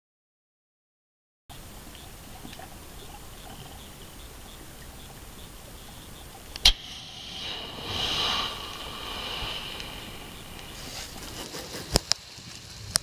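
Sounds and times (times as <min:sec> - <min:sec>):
sharp clicks: 0:01.9 - 0:06.9
hose spraying water: 0:02.2 - 0:13.0.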